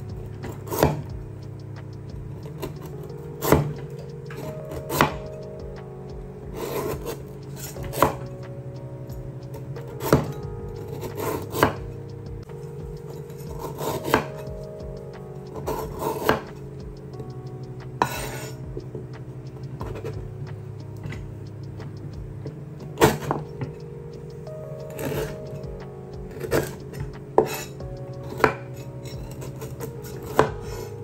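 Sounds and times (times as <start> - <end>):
background music: 0.0 - 31.0
knife chopping on wooden board: 13.8 - 14.4
knife scraping: 18.0 - 18.6.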